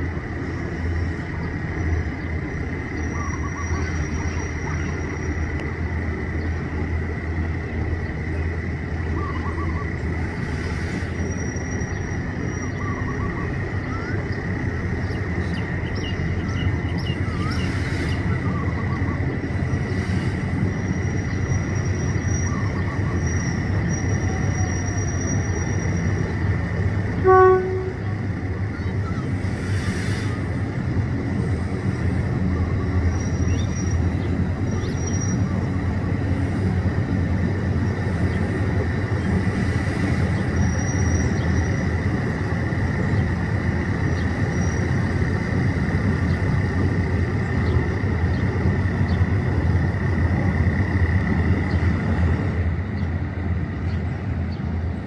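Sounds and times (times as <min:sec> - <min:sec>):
diesel locomotive rumbling: 0:00.0 - 0:55.0
train horn blast: 0:27.1 - 0:28.3.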